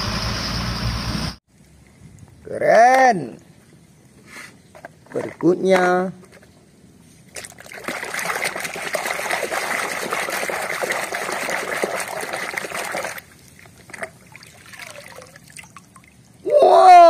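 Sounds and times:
water drips: 7.3s - 16.4s
water splashing in a tub: 7.3s - 16.4s.

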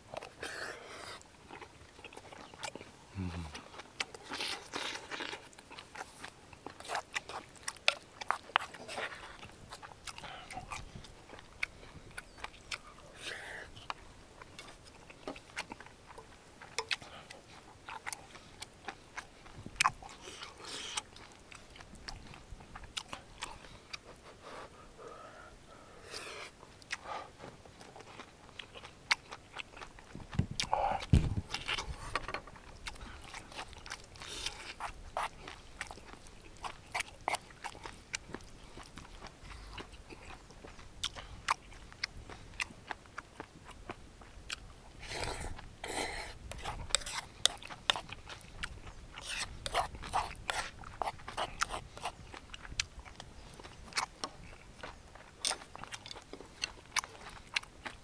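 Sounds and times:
person chewing with mouth clicks: 0.0s - 58.0s
dull low thump: 30.2s - 31.5s.

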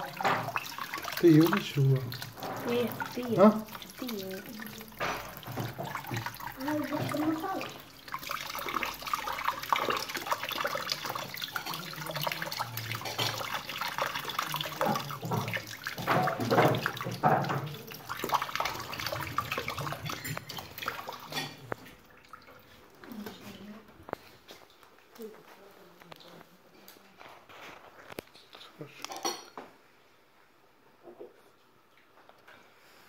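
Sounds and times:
tap water splashing into sink: 0.0s - 23.4s.

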